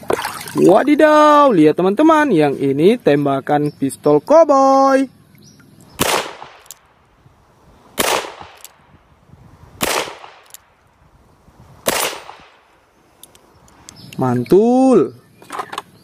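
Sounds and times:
revolver shots with echo: 6.0s - 6.7s, 8.0s - 8.8s, 9.8s - 10.6s, 11.8s - 12.7s.

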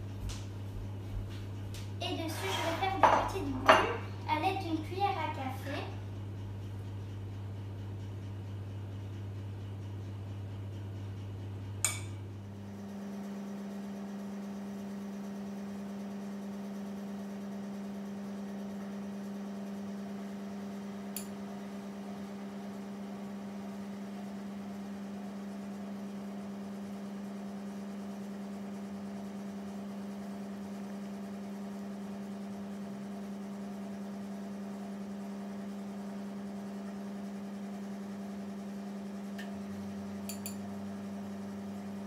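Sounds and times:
low electrical hum: 0.0s - 13.7s, 32.0s - 42.0s
sharp click: 40.3s - 40.6s.

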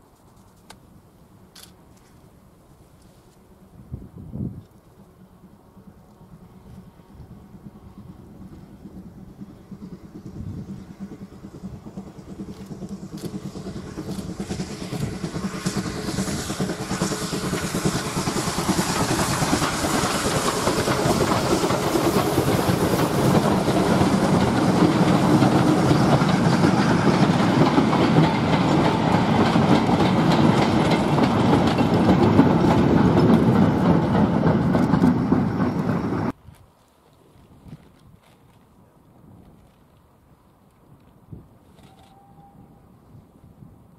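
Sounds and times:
train wheels clattering: 5.8s - 36.4s.

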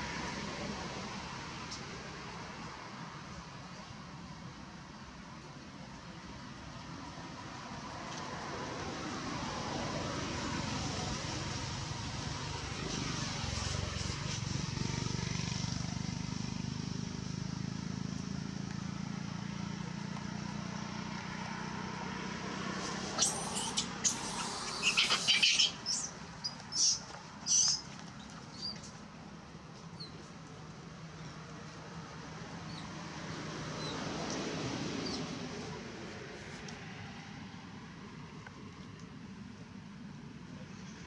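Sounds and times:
squeaky animal chirps and squeals: 23.0s - 27.8s.

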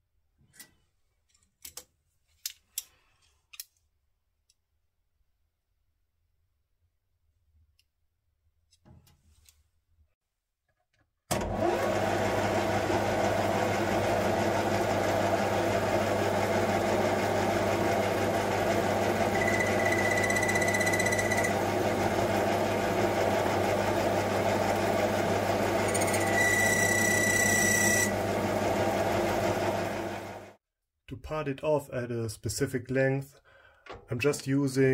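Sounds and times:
metal lathe humming: 11.5s - 30.5s
high-pitched cutting squeal: 19.2s - 21.7s, 25.8s - 28.2s.

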